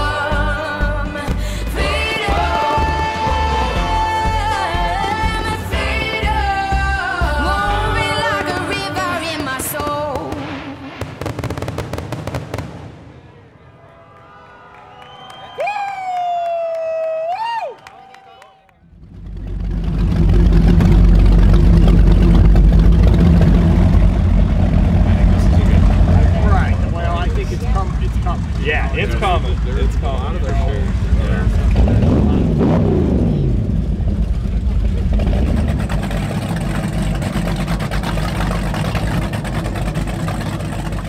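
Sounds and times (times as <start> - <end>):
deep boat engines running: 0.0 - 10.2, 18.8 - 41.0.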